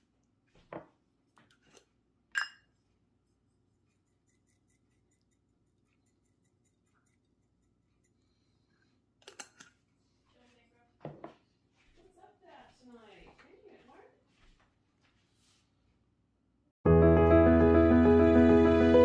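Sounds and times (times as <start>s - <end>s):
glass jar clinking: 2.3s - 2.7s.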